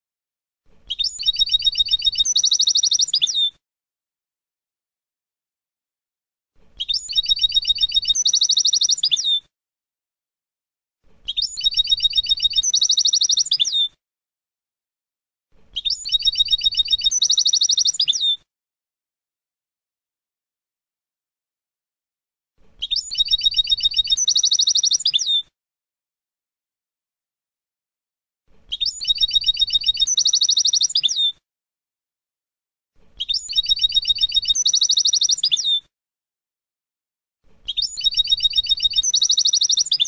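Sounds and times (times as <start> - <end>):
goldfinch song: 0.8 - 3.6, 6.8 - 9.4, 11.2 - 14.0, 15.7 - 18.4, 22.8 - 25.5, 28.6 - 31.4, 33.1 - 35.9, 37.6 - 40.0.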